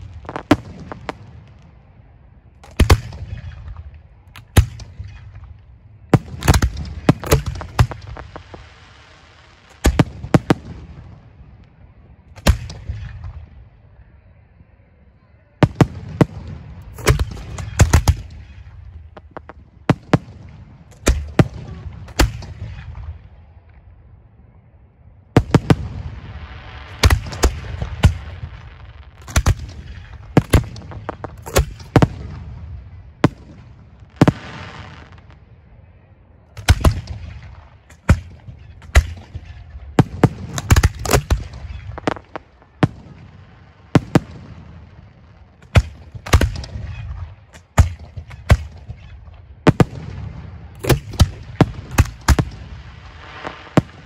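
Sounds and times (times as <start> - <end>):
hissing crackle: 2.5 - 13.3, 25.4 - 54.0
firework shells booming: 2.6 - 8.8, 15.6 - 23.3, 25.4 - 35.4, 36.6 - 54.0.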